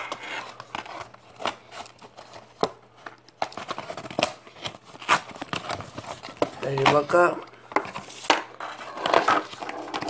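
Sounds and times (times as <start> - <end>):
cardboard and cables rustling: 0.0 - 10.0.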